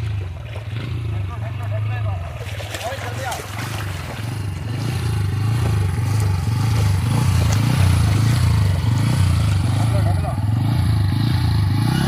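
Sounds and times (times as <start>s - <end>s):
water splashing: 0.0s - 10.7s
motorcycle engine revving: 0.0s - 12.0s.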